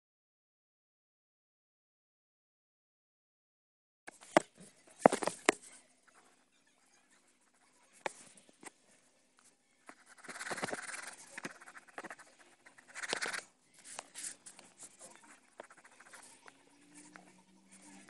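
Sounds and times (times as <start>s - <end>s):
pencil scratching on paper: 9.8s - 18.0s
pencil tapping: 9.9s - 13.4s, 15.5s - 17.3s.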